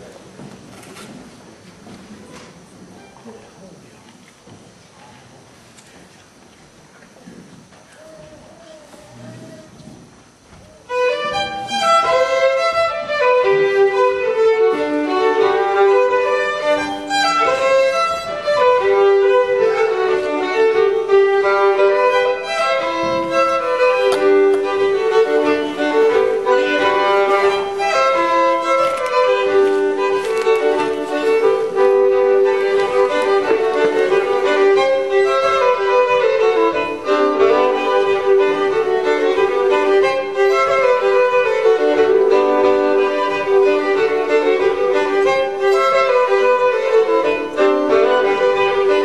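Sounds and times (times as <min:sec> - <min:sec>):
two fiddles playing folk dance tune: 0:10.8 - 0:49.0.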